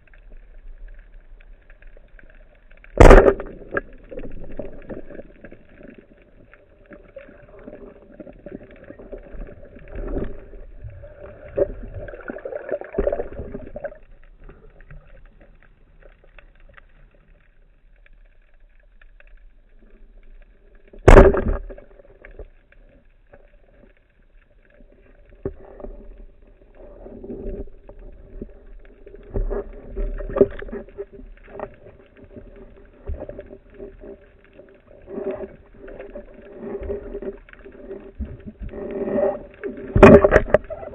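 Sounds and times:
underwater knocks and clatter: 0.8s - 17.3s, 20.8s - 24.0s, 24.6s - 40.9s
speargun firing crack underwater: 3.0s - 4.9s, 21.0s - 21.8s, 39.9s - 40.6s.

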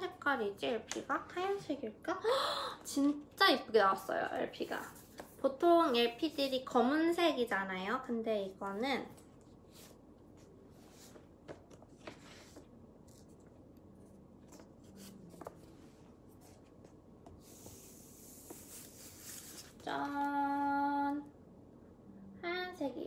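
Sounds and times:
paper sleeve rustling: 17.4s - 19.8s.

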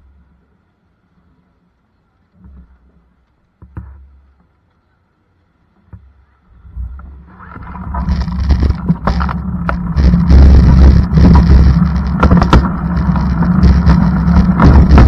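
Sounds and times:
vehicle rumble from on board: 6.5s - 15.0s
knocks and rattles: 6.8s - 15.0s.

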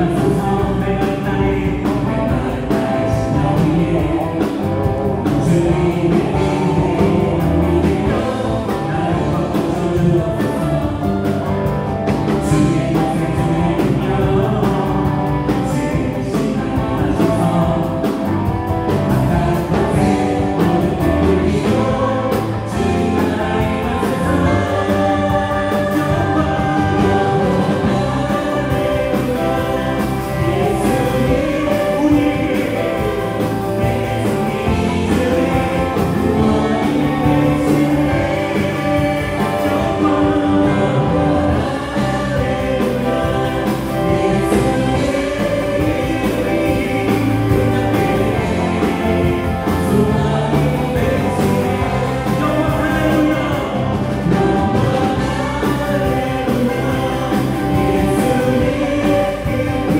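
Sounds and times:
bass guitar: 0.0s - 59.9s
drums: 0.0s - 59.9s
electric guitar: 0.0s - 59.9s
keyboards: 0.0s - 59.9s
voices singing along: 0.0s - 59.9s.

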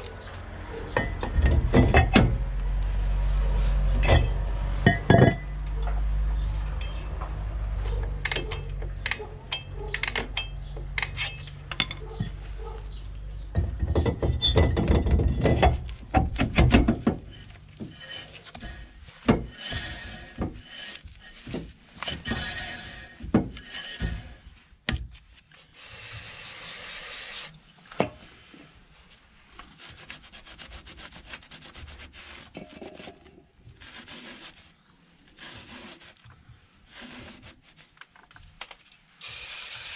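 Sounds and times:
metal clinks and knocks: 0.8s - 2.5s, 4.0s - 6.1s, 6.7s - 12.4s, 13.4s - 19.6s
scrubbing rusty brake drum: 3.6s - 27.5s
short hiss: 39.2s - 39.9s.

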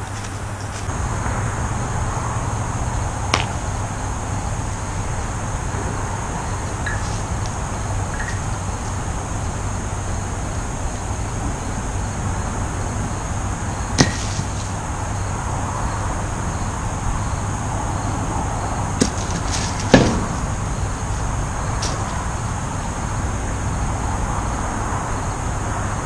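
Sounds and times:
wooden batons knocking wooden blocks: 3.3s - 3.6s, 14.0s - 14.5s, 19.0s - 20.6s.

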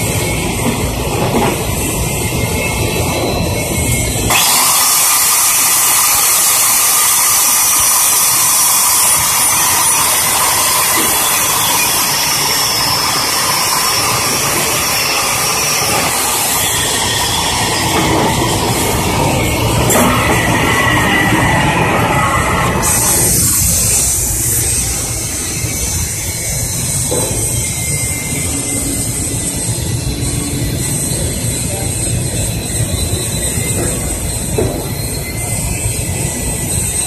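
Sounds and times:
angle grinder grinding metal: 4.3s - 18.1s.

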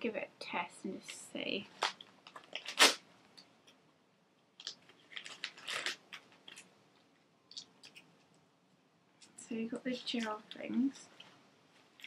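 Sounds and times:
plastic packaging crinkling: 1.8s - 3.0s, 4.6s - 6.7s.

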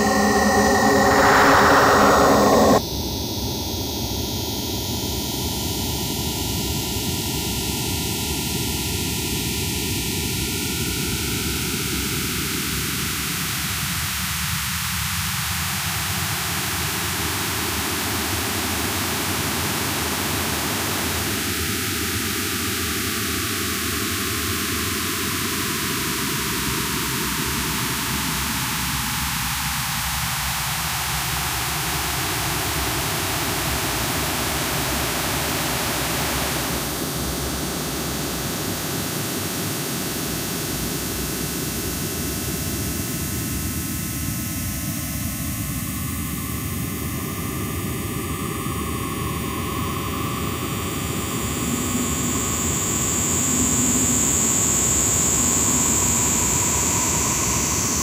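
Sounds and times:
harsh noise music hiss: 0.0s - 2.8s
high whistling tone: 0.0s - 2.8s.

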